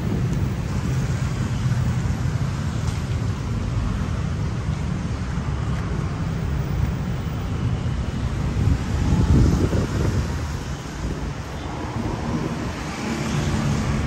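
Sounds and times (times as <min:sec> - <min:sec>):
wind buffeting microphone: 0:00.0 - 0:02.4, 0:06.0 - 0:14.0.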